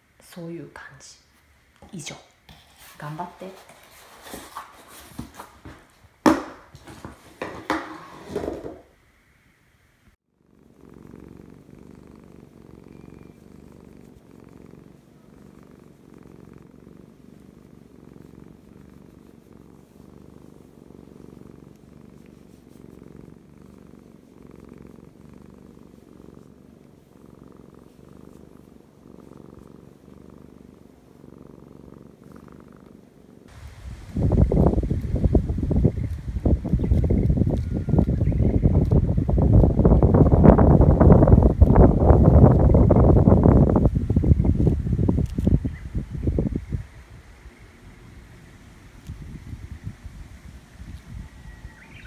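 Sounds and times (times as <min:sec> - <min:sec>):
cat purring: 0:10.3 - 0:51.8
wind buffeting microphone: 0:33.5 - 0:52.0.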